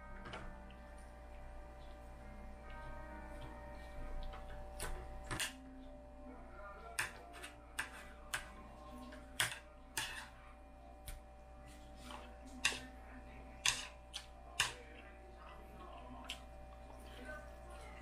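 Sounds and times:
faint steady hum: 0.0s - 18.0s
cutlery clicking on plates: 4.3s - 5.6s, 7.0s - 8.5s, 9.4s - 10.3s, 13.6s - 14.8s.

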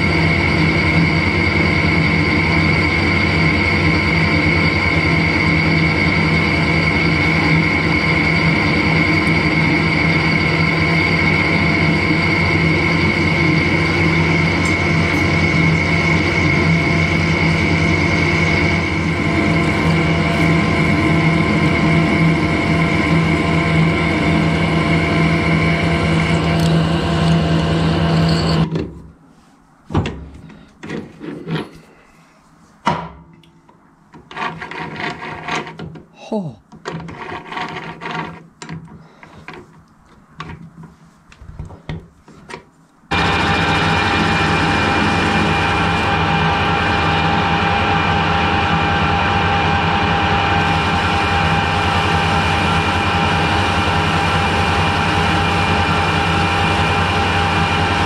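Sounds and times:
metal lathe running: 0.0s - 28.6s, 43.1s - 58.0s.

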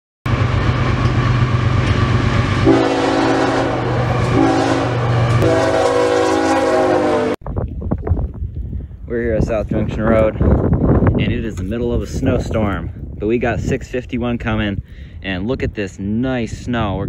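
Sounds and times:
diesel locomotive rumbling: 0.3s - 7.4s
train horn blasts: 2.6s - 7.4s.

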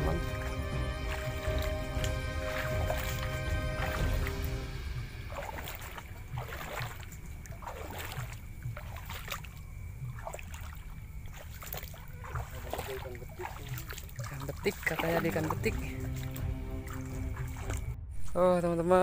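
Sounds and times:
footsteps splashing in water: 0.0s - 18.0s.

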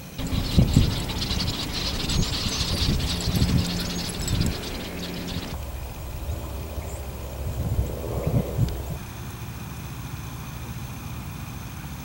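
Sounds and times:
flock of birds chirping: 0.0s - 9.1s
low rumbling and thumping: 0.2s - 9.1s.

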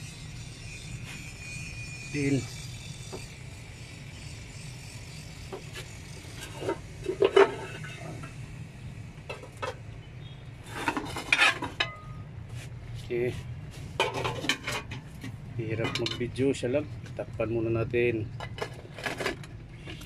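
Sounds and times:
steady low hum: 0.0s - 20.0s
metal pot and utensils clattering: 6.4s - 8.3s, 10.7s - 12.2s, 14.0s - 15.1s, 15.7s - 16.3s.

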